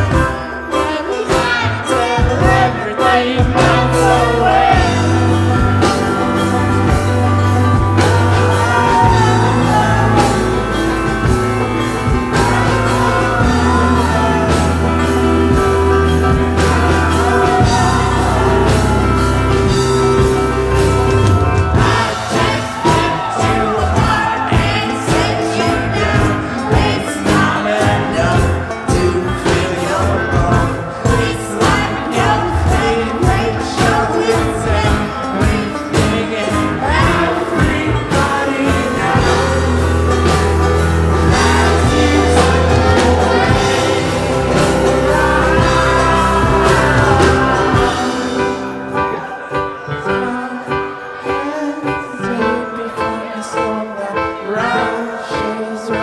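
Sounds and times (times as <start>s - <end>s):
live rock band playing: 0.0s - 56.0s
sung vocals: 0.0s - 56.0s.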